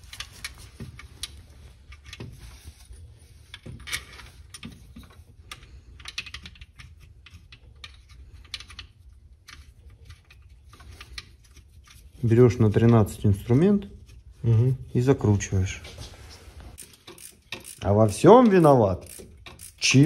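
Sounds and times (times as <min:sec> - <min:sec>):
metallic clicks of bolts: 0:03.6 - 0:11.3, 0:16.8 - 0:20.0.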